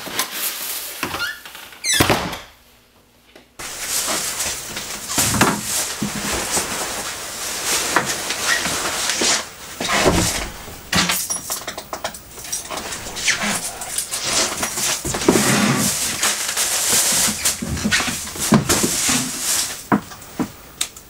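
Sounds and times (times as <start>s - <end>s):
jacket rustling: 3.6s - 6.9s, 12.2s - 19.8s
footsteps: 3.6s - 7.0s, 9.8s - 11.4s, 12.0s - 19.0s
plastic bag rustling: 3.6s - 20.3s.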